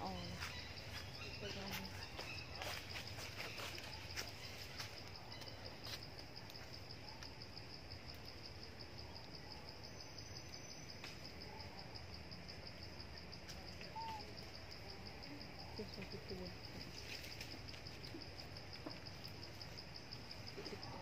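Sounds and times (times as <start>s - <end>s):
faint bird chirps: 0.0s - 5.9s, 13.7s - 14.6s
high pulsed insect trill: 0.0s - 21.0s.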